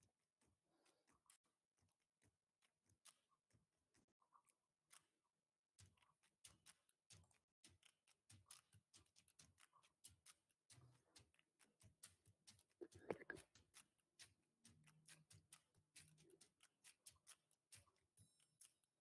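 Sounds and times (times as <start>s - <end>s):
faint irregular clicks: 0.0s - 19.0s.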